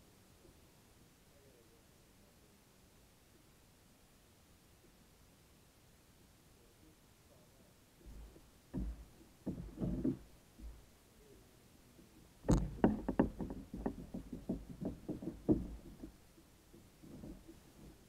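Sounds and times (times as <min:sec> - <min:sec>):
fishing gear knocking in plastic kayak: 0:08.1 - 0:10.8, 0:12.4 - 0:18.0.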